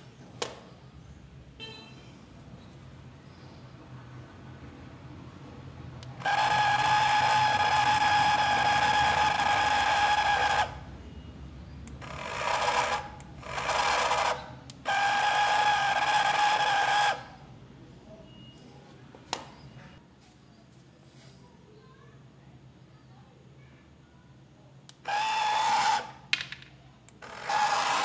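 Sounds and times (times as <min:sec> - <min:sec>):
toy motor whirring: 0:06.1 - 0:10.9, 0:11.9 - 0:17.4, 0:25.0 - 0:26.3, 0:27.2 - 0:28.0
click: 0:24.8 - 0:25.0.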